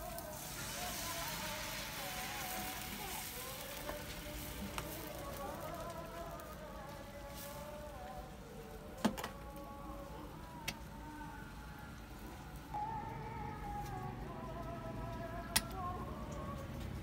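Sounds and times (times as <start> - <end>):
eggs sizzling in a frying pan: 0.0 - 8.8
soft background music: 0.0 - 17.0.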